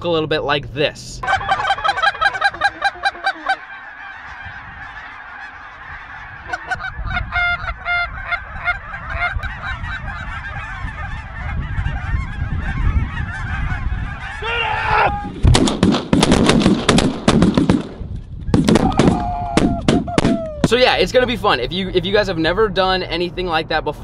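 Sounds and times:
geese honking: 0:01.2 - 0:15.2.

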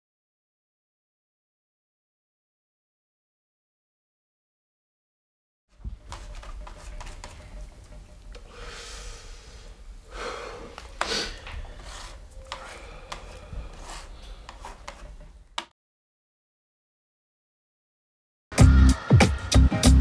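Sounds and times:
rubbing and rustling: 0:05.8 - 0:07.6, 0:11.3 - 0:15.2
breathy swells: 0:08.5 - 0:11.6.

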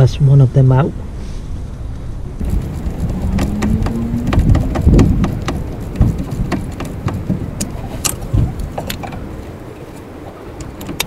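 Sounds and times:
ratchet clicking on bolts: 0:02.4 - 0:08.2
dull handling knocks: 0:02.4 - 0:09.5.

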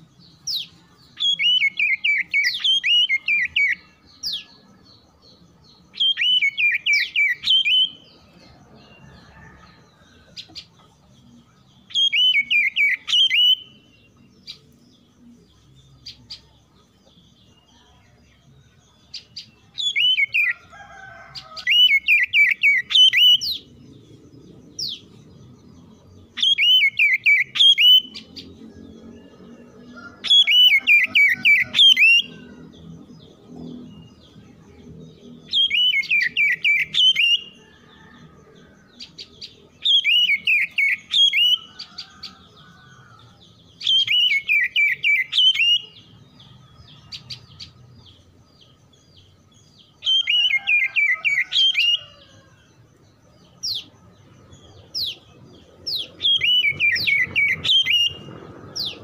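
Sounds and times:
bird singing whistled notes: 0:00.0 - 0:04.7, 0:05.6 - 0:08.2, 0:11.4 - 0:17.9, 0:19.0 - 0:20.6, 0:21.5 - 0:23.8, 0:24.7 - 0:38.1, 0:39.0 - 0:47.8, 0:48.6 - 0:52.5, 0:54.6 - 0:59.0.

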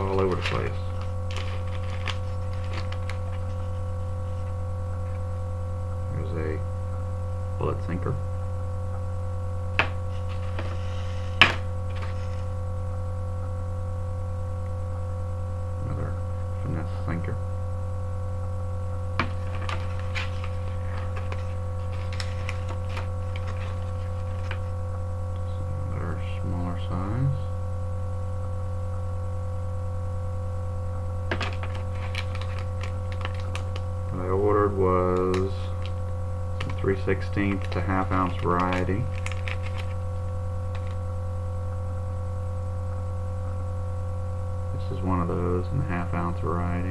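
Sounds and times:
plastic bag of sinkers crinkling: 0:00.0 - 0:04.5, 0:19.2 - 0:24.7, 0:31.3 - 0:34.0, 0:36.6 - 0:40.1, 0:40.7 - 0:41.0
plastic packaging rustling: 0:00.0 - 0:04.6, 0:09.8 - 0:12.6, 0:19.2 - 0:24.8, 0:31.3 - 0:34.0, 0:36.6 - 0:41.0
low electrical hum: 0:00.0 - 0:46.9.

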